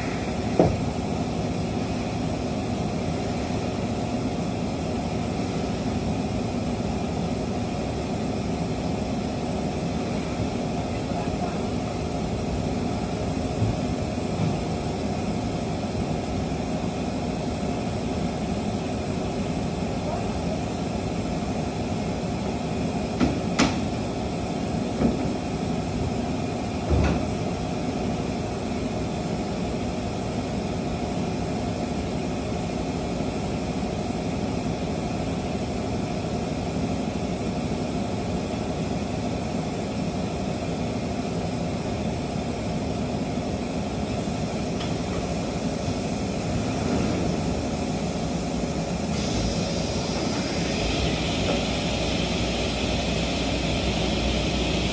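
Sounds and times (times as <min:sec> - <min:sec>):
workshop machinery droning: 0:00.0 - 0:54.9.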